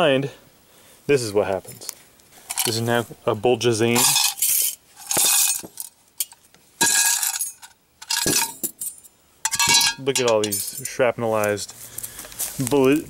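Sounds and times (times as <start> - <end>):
metal clinking and rattling: 2.4 - 2.8, 4.0 - 11.0.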